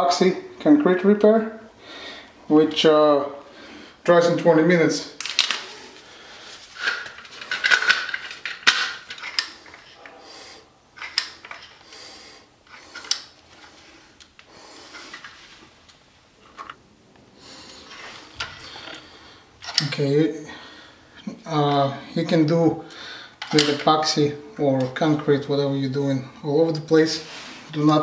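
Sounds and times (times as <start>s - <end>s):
handling clicks and scraping: 5.2s - 5.8s, 6.5s - 10.2s, 11.0s - 11.9s, 12.6s - 16.8s, 17.6s - 20.1s, 22.9s - 24.2s.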